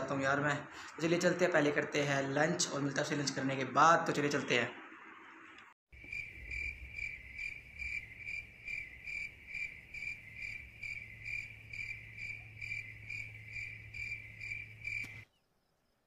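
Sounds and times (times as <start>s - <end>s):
crickets chirping: 5.9s - 16.0s.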